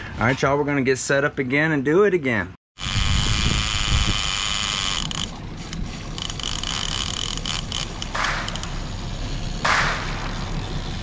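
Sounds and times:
fishing reel spool whining and clicking: 2.8 - 9.6.

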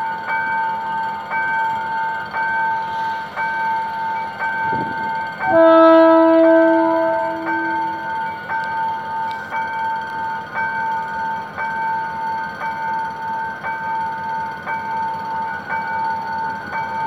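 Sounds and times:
level crossing bell ringing: 5.4 - 10.0
locomotive horn: 5.5 - 8.2.

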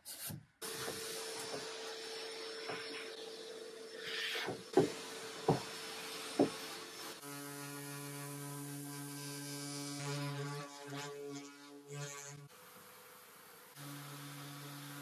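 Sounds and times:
shop vacuum humming: 0.6 - 8.4
orbital sander on wood: 0.6 - 13.0, 13.7 - 15.0.

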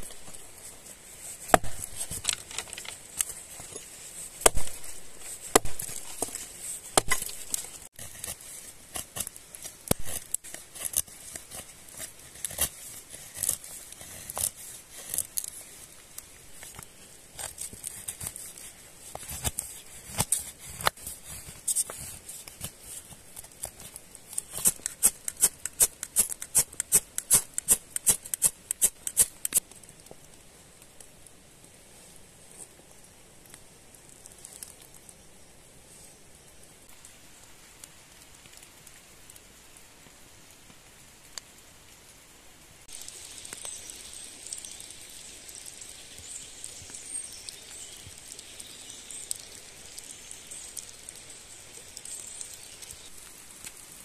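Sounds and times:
knife carving wood: 1.4 - 15.6, 16.7 - 29.7
hatchet chopping branch: 1.5 - 2.8, 4.4 - 4.9, 5.5 - 6.3.

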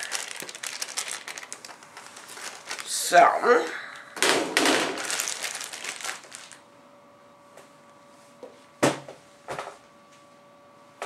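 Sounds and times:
plastic wrapping crinkling: 0.0 - 3.3, 4.6 - 6.6.

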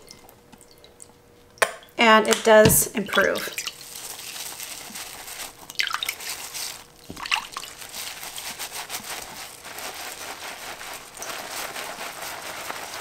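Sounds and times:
water sloshing and dripping: 0.0 - 8.4
water splashes: 2.4 - 4.0, 5.7 - 6.3
wet squishing of bath pouf: 2.6 - 13.0.

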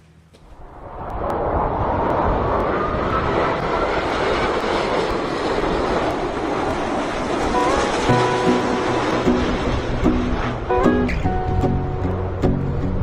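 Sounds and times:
jet engines rushing with whine: 0.0 - 13.0
music with plucked notes: 7.6 - 13.0.

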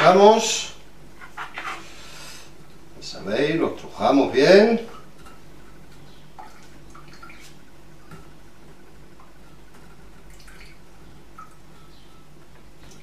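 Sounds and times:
liquid dripping into jug: 9.2 - 11.7.

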